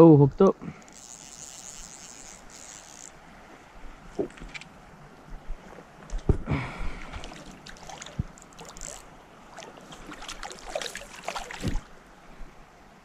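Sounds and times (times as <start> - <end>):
fish thrashing and splashing water: 7.1 - 11.9.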